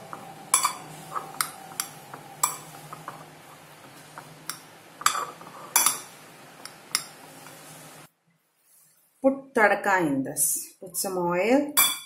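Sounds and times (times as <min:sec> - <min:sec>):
faint steady hum: 0:00.0 - 0:08.6.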